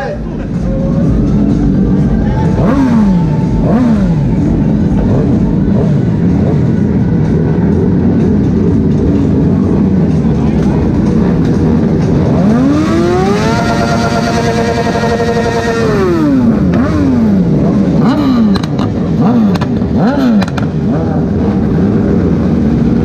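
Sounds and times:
motorcycle engine running low: 0.0 - 23.0
motorcycle revving: 0.0 - 23.0
exhaust cracks: 17.8 - 20.9.

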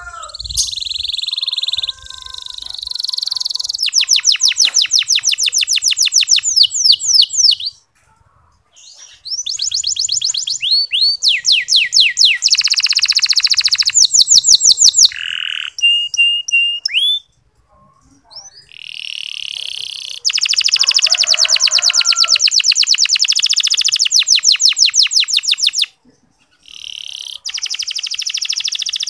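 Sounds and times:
canary singing trills: 0.0 - 7.9, 8.7 - 29.0.

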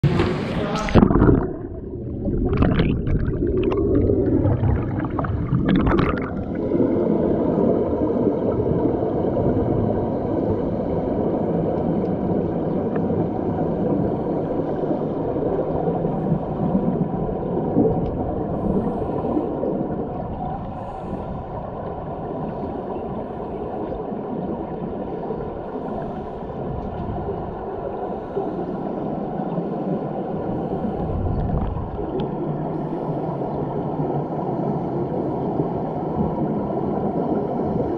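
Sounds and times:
water splashing: 0.0 - 7.8
bubbles rushing and gurgling underwater: 0.0 - 37.9.

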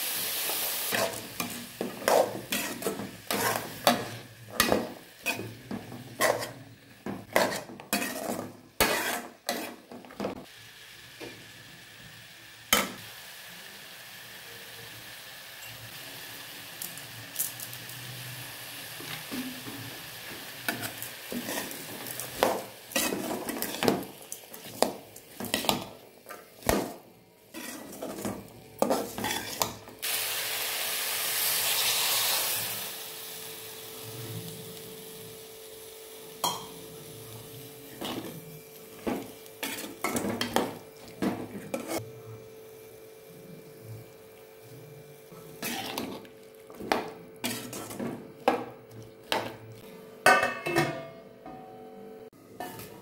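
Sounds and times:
water hissing in hot pan: 0.0 - 5.7, 10.4 - 26.0, 29.0 - 40.2
metal spoon scraping a pan: 0.9 - 10.0, 20.7 - 26.4, 27.5 - 29.8, 39.6 - 40.6, 41.6 - 42.0, 45.6 - 46.3, 47.4 - 48.1.

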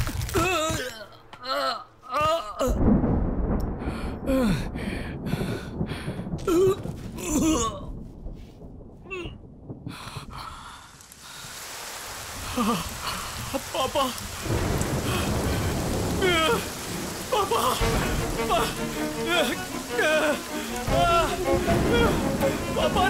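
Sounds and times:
rain: 0.0 - 23.0
man crying out: 16.1 - 23.0.

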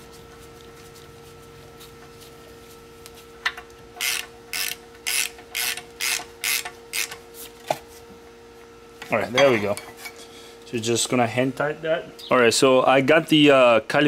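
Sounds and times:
hand ratchet clicking: 4.0 - 7.2.

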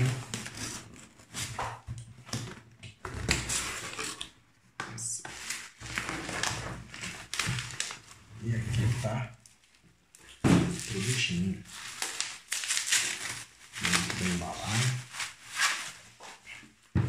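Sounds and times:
packing paper crinkling: 5.4 - 9.8, 10.7 - 16.2.

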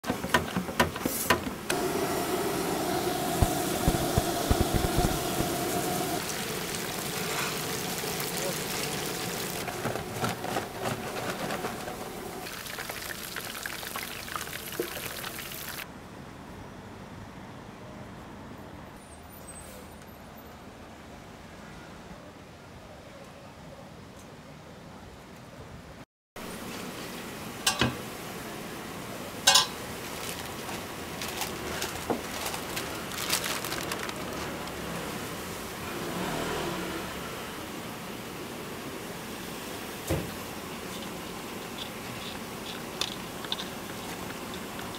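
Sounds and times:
steady hiss: 1.1 - 9.9
chicken deep-frying in oil: 1.7 - 15.9, 26.4 - 44.9
metal kitchenware clanking: 27.7 - 28.0, 29.5 - 29.8.

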